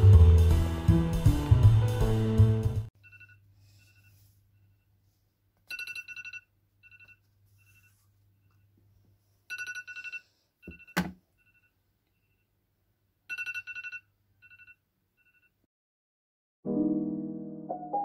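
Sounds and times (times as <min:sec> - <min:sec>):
smartphone alarm beeping: 0:09.5 - 0:12.4.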